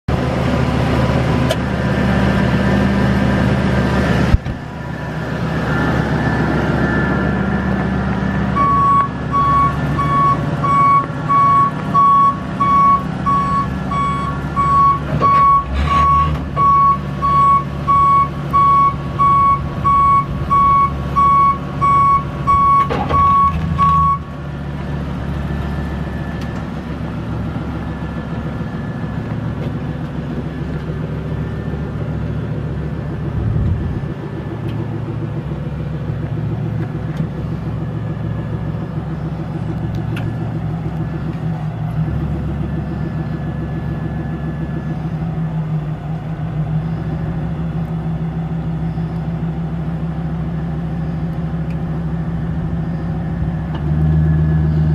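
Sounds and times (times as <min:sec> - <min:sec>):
truck engine running: 0:00.1 - 0:54.9
backup alarm beeping: 0:08.6 - 0:24.3.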